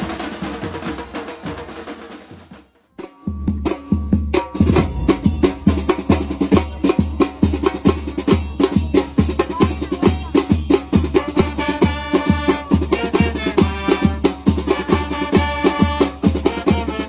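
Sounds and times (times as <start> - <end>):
band playing upbeat tune: 0.0 - 17.0
fast drum beat: 0.0 - 17.0.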